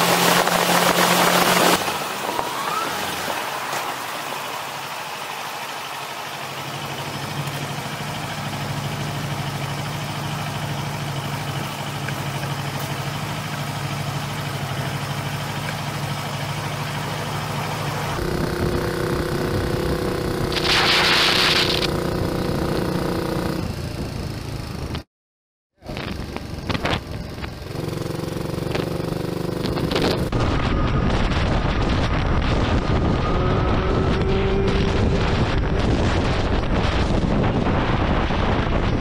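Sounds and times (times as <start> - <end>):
motorcycle engine idling: 5.6 - 25.0, 25.9 - 30.2
small motorbike engine running: 6.0 - 25.0, 25.8 - 30.4
loud hiss: 20.5 - 22.0.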